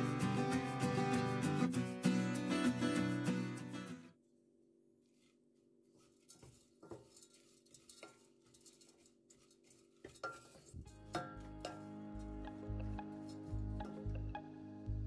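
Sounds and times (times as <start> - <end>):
background music: 0.0 - 4.0, 10.8 - 15.0
spoon scraping saucepan: 6.0 - 12.6.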